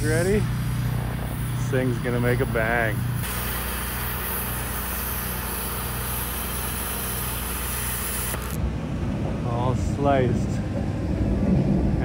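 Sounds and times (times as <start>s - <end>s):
cutting torch hissing: 0.0s - 8.6s.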